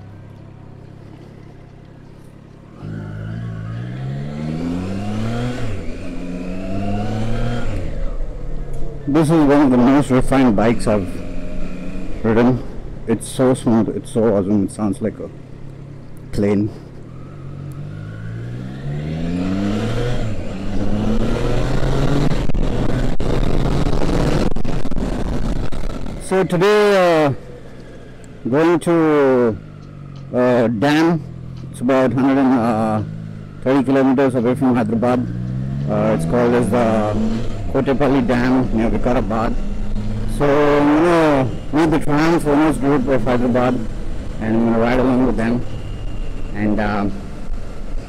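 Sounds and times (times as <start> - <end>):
motorcycle engine accelerating: 0.0 - 48.0
rushing wind noise: 20.1 - 26.3.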